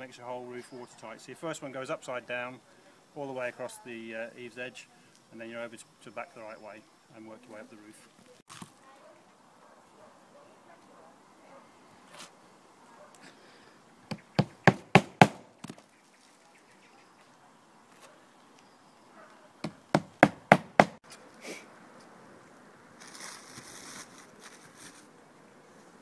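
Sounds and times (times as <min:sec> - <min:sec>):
hammer striking nails: 0:14.1 - 0:15.5, 0:19.6 - 0:21.0.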